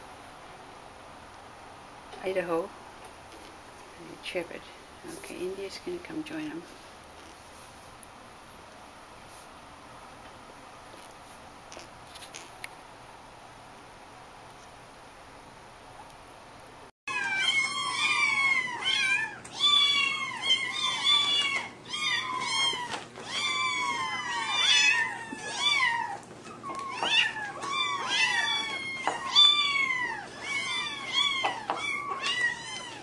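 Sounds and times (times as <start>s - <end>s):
kittens meowing: 17.1s - 33.0s.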